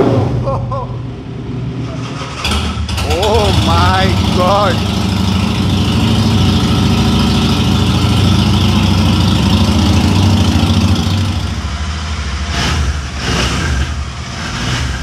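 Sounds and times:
motorcycle engine idling: 2.5s - 12.4s.

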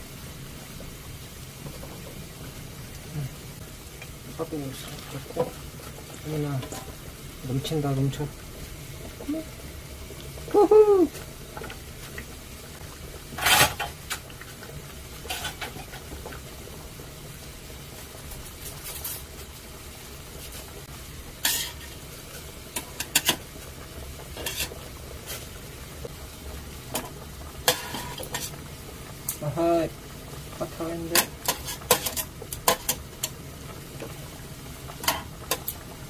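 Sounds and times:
pot boiling hiss: 0.0s - 36.0s.

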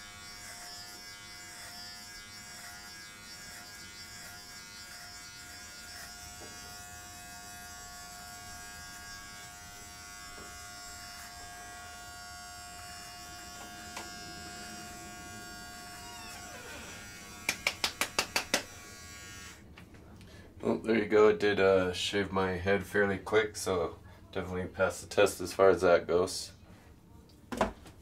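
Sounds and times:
electric trimmer buzzing: 0.0s - 19.7s.

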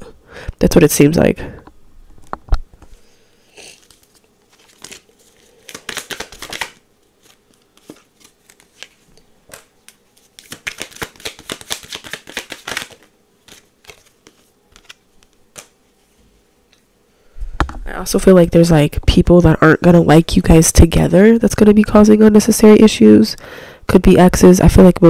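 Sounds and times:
cards being shuffled: 3.7s - 15.8s.

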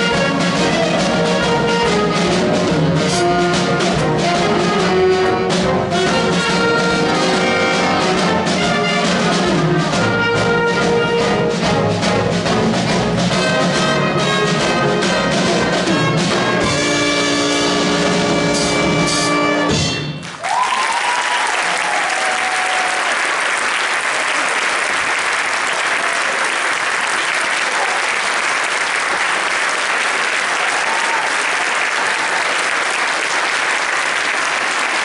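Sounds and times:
big band horns chord: 0.0s - 20.3s
audience applause: 20.2s - 35.0s.

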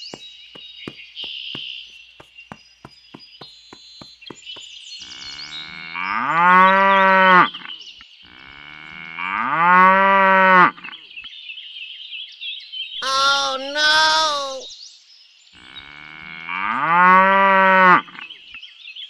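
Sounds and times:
cow mooing: 15.7s - 18.2s.

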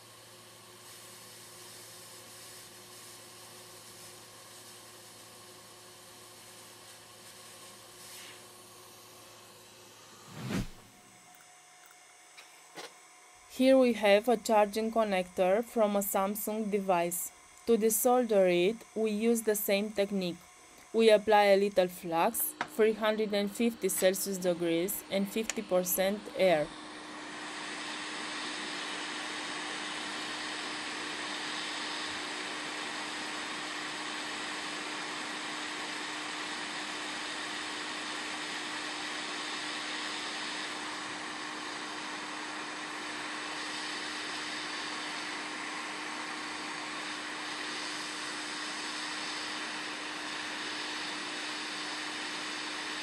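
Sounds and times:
hot air blower hissing: 0.0s - 11.2s, 12.3s - 53.0s
faint steady hum: 6.4s - 34.8s.

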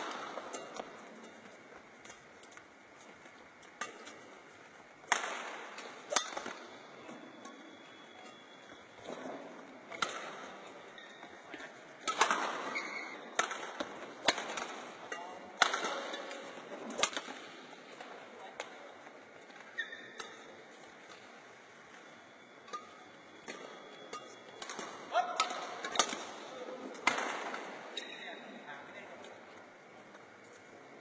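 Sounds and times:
racket hitting shuttlecock: 3.7s - 7.6s, 9.1s - 17.7s, 22.7s - 28.1s.

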